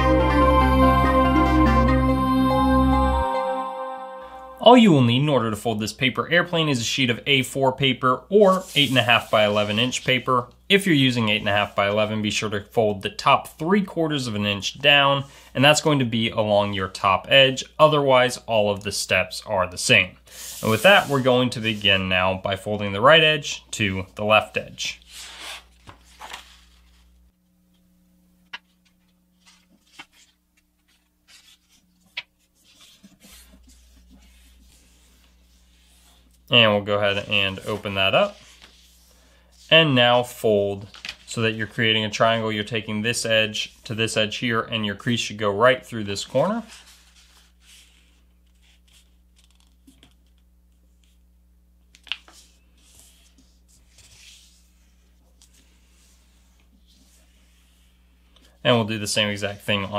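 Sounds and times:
faint steady hum: 0.0s - 59.9s
paper rustling as folded: 8.4s - 10.2s, 20.4s - 21.9s, 25.0s - 27.2s, 28.5s - 39.7s, 40.3s - 41.9s, 46.3s - 51.2s, 51.9s - 58.0s
paper crease ticks and rubbing: 40.8s - 42.0s, 46.6s - 50.4s.

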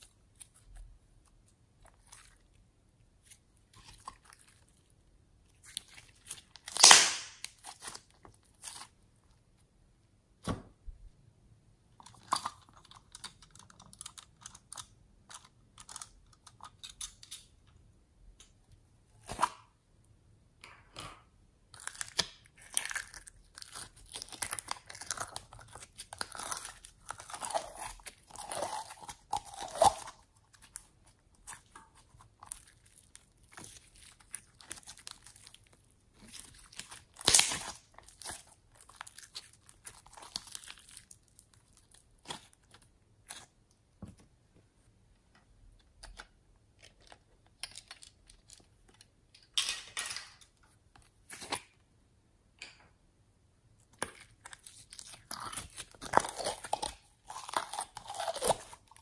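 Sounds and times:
air pockets popping in slime: 6.6s - 7.6s
hands squishing sticky slime: 21.8s - 43.8s.

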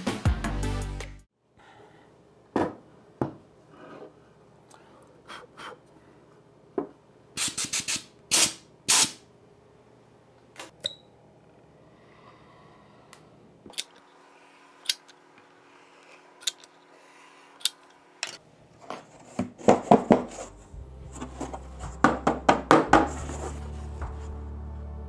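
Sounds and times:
background music: 0.0s - 1.3s, 20.3s - 25.0s.

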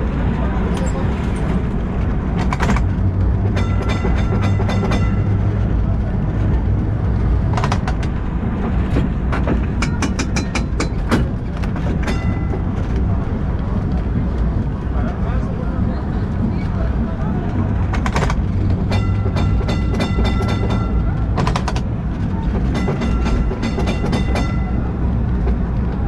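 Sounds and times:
tram rumbling on rails: 0.0s - 26.0s
sharp wheel clacks: 2.4s - 5.7s, 17.9s - 21.9s, 22.5s - 25.6s.

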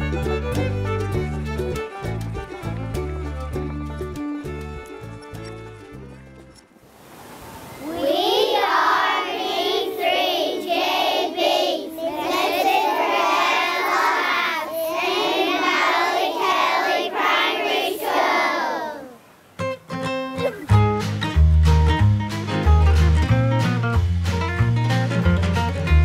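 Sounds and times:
guitar music: 0.0s - 6.7s, 19.6s - 26.0s
children singing in unison: 7.8s - 19.2s.

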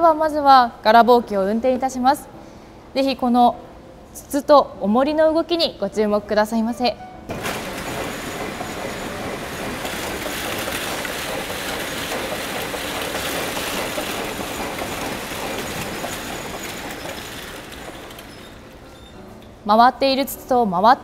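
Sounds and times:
spinning machine rattling clatter: 7.3s - 19.2s.

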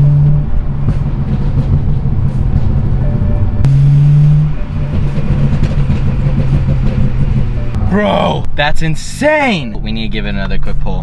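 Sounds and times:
car engine and exhaust droning: 0.0s - 8.6s.

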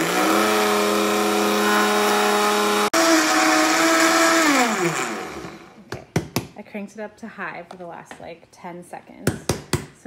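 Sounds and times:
blender motor whining: 0.0s - 5.8s.

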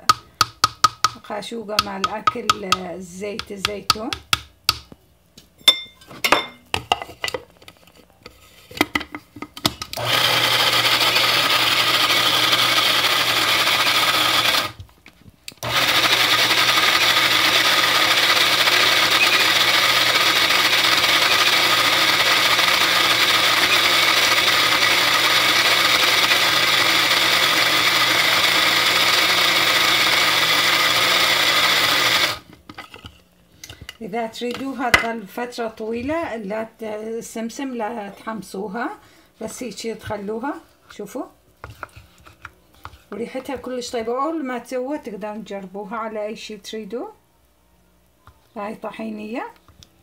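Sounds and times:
electric grinder motor running: 10.0s - 14.8s, 15.6s - 32.4s.

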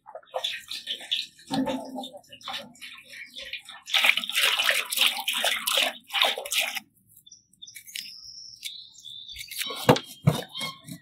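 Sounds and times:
water pouring into a pot: 0.2s - 6.9s
bird chirping: 7.1s - 11.0s.

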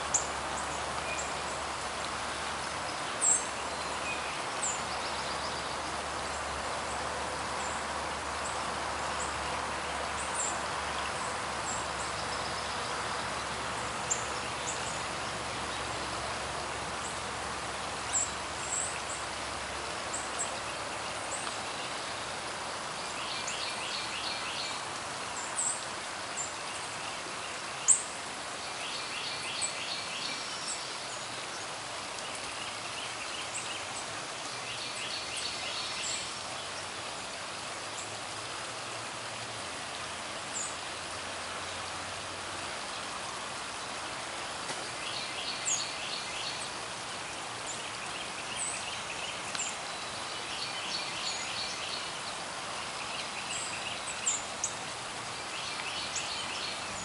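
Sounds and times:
steady outdoor hiss: 0.0s - 57.0s
songbirds trilling: 40.0s - 57.0s.

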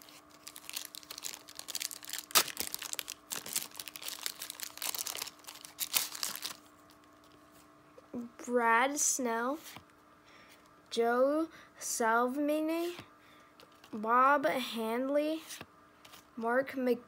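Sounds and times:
foil wrapper crinkling: 0.0s - 7.4s.

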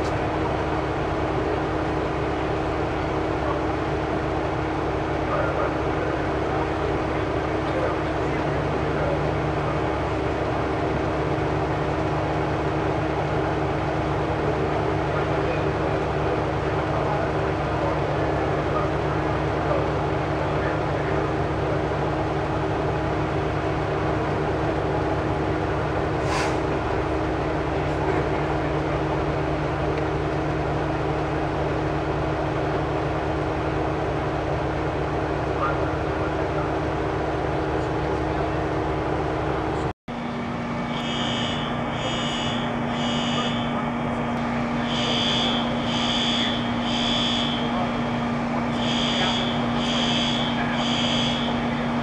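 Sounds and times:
diesel engine idling: 0.0s - 52.0s
short hiss: 26.2s - 26.6s
fire alarm beeps: 40.8s - 43.8s, 44.8s - 47.9s, 48.7s - 51.8s.

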